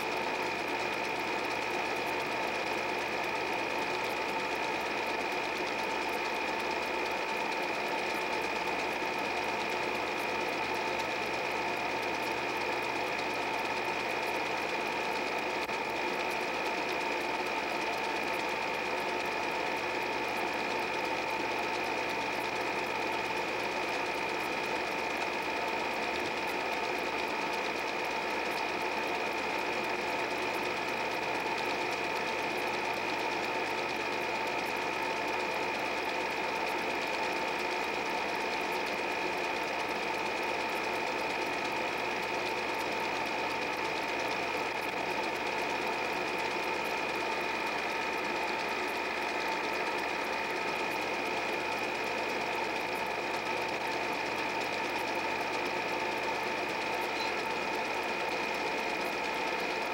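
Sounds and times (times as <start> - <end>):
film projector running: 0.0 - 59.9.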